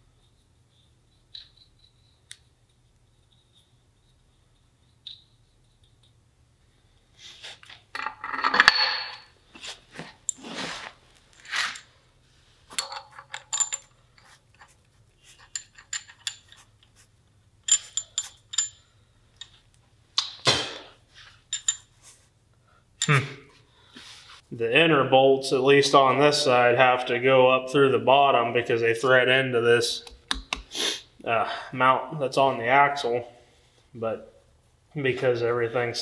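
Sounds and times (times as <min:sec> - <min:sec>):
bolts and nuts clinking: 0:00.2 - 0:06.2, 0:07.6 - 0:09.4, 0:12.7 - 0:17.0, 0:17.6 - 0:20.4, 0:21.3 - 0:22.0, 0:23.0 - 0:23.3.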